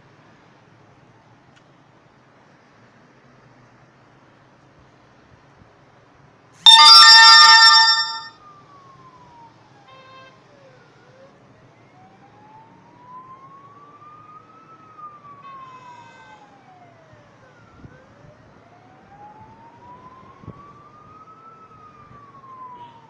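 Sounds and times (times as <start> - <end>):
short horn beep: 6.7 - 8.3
siren wailing: 6.7 - 8.3.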